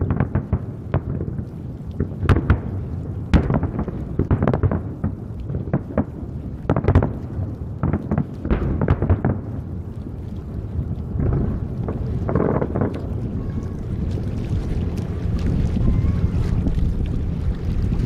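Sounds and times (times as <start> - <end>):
continuous low rumble: 0.0 - 18.0
firework shells booming: 2.0 - 7.2, 7.8 - 9.6.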